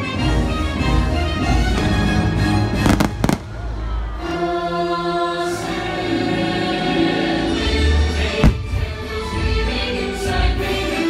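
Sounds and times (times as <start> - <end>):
fireworks bangs: 2.8 - 3.8
choir singing held notes: 2.9 - 11.0.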